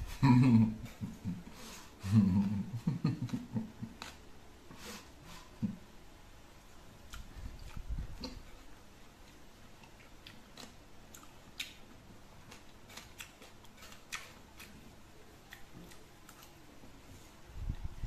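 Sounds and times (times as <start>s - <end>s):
wet chewing clicks and smacks: 7.1s - 14.8s.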